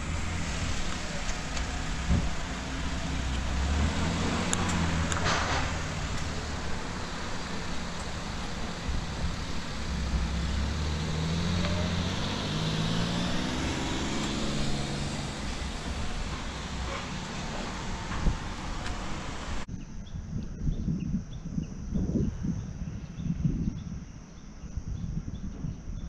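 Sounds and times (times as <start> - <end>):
car engine pulling away: 0.0 - 19.7
car engines passing at low speed: 0.0 - 19.7.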